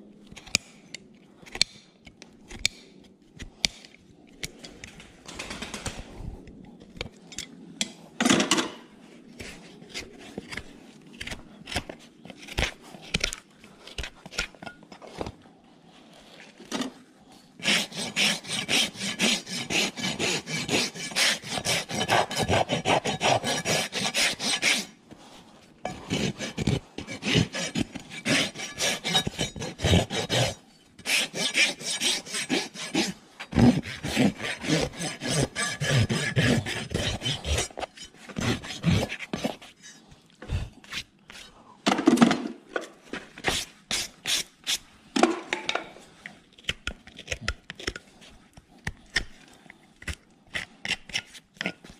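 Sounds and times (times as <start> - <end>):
hoof nippers cutting hoof: 17.6 - 24.9, 25.9 - 39.7
hoof rasp filing: 17.6 - 25.0, 25.8 - 41.5, 43.4 - 44.8.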